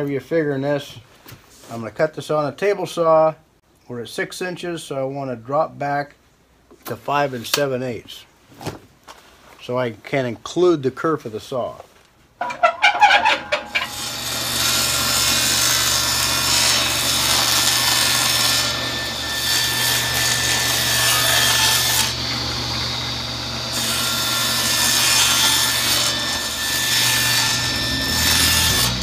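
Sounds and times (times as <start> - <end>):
saw blade cutting plywood: 12.4 - 29.0
table saw motor running: 12.6 - 29.0.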